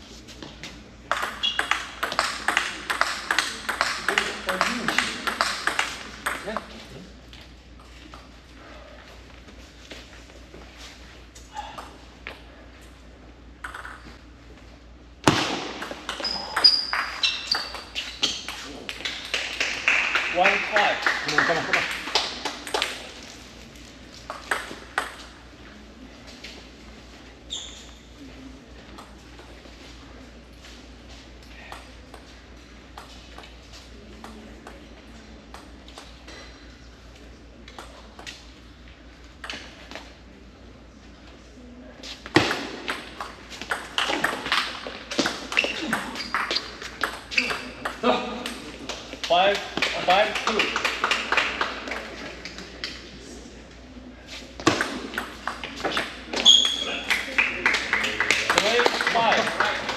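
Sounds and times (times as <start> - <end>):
low hall hum: 0.0 - 59.9
table tennis balls bouncing: 0.4 - 8.4, 11.6 - 12.9, 13.6 - 14.4, 15.2 - 25.8, 28.8 - 29.8, 31.6 - 36.6, 37.6 - 38.6, 39.3 - 40.2, 42.1 - 53.1, 54.6 - 59.9
table tennis ball strikes: 1.1 - 6.7, 13.6 - 14.2, 15.2 - 20.7, 24.3 - 25.4, 42.3 - 48.6, 54.6 - 56.8
shoes squeaking on floor: 1.2 - 2.2, 16.1 - 18.8, 27.4 - 28.2, 44.1 - 47.8, 55.7 - 57.1.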